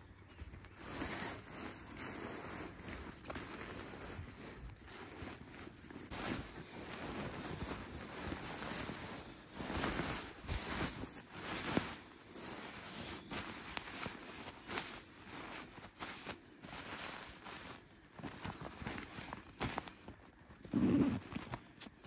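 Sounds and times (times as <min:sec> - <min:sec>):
sleeping bag nylon rustling: 0:00.0 - 0:22.0.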